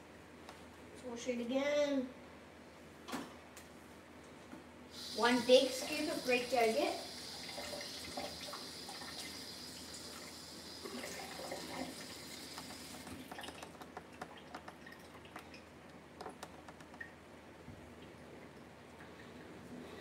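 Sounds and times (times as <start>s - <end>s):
water running from tap: 4.9s - 15.5s
utensils clicking and tapping: 12.5s - 15.6s.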